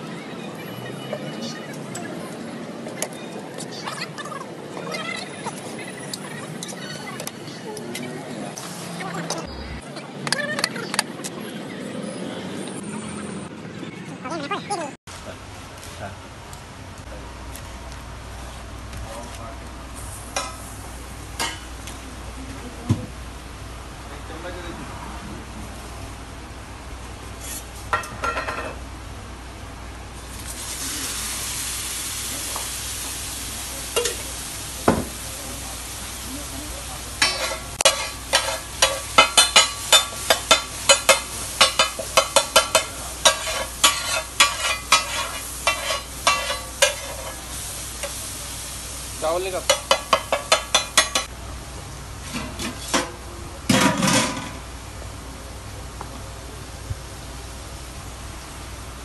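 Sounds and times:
metal spatula scraping griddle: 27.4s - 28.1s, 37.2s - 47.5s
butter sizzling on a griddle: 30.2s - 51.3s.

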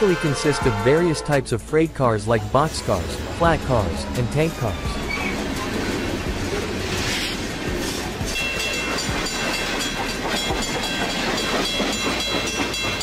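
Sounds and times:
train wheels rumbling on rail: 2.6s - 13.0s
wheels clicking over rail joints: 4.9s - 13.0s.

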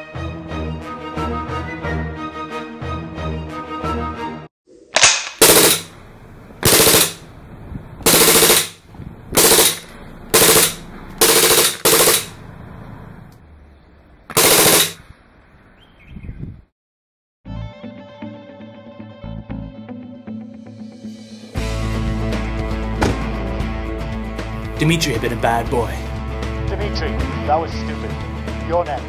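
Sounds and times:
background music: 0.0s - 4.5s, 17.5s - 29.0s
automatic gunfire bursts: 5.4s - 5.9s, 6.6s - 7.2s, 8.1s - 8.8s, 9.4s - 12.4s, 14.3s - 15.0s.

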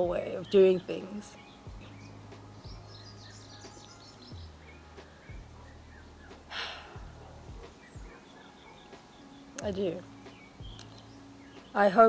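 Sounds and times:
faint bird chirps: 0.0s - 12.0s
breathy exhale: 6.5s - 7.0s.

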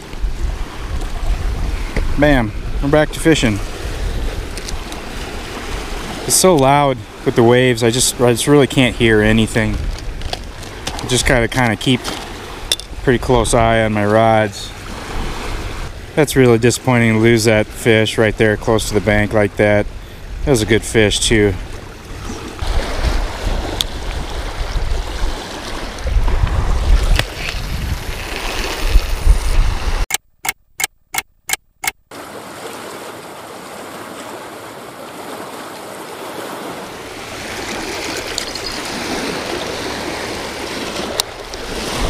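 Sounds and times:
wind rumbling on microphone: 0.0s - 6.3s, 8.8s - 14.0s, 19.9s - 30.1s, 36.8s - 42.0s
waves washing onto rocky shore: 0.0s - 13.1s, 32.2s - 42.0s.

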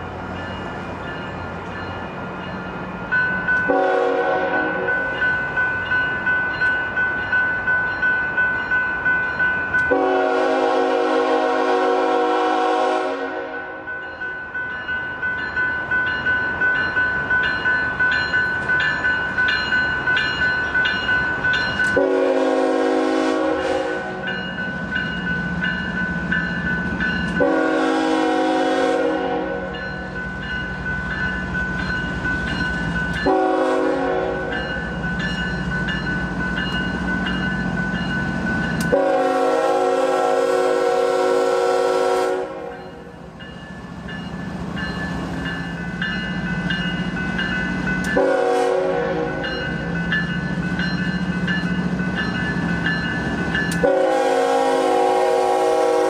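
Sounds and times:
locomotive air horn blasts: 3.7s - 4.9s, 9.9s - 13.7s, 22.0s - 24.2s, 27.4s - 29.7s, 33.2s - 34.4s, 38.9s - 42.8s, 48.2s - 49.4s, 53.8s - 56.0s.

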